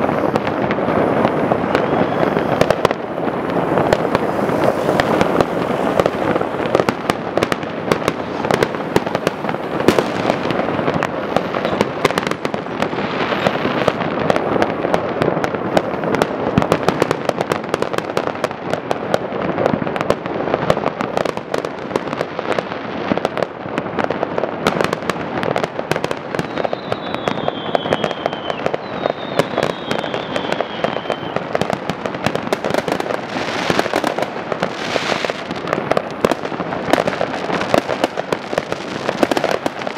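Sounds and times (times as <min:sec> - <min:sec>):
falling firework whistles: 0:00.0 - 0:14.7, 0:25.6 - 0:31.8
fireworks crackling and banging: 0:00.0 - 0:39.9
hissing firework burst: 0:00.0 - 0:39.9.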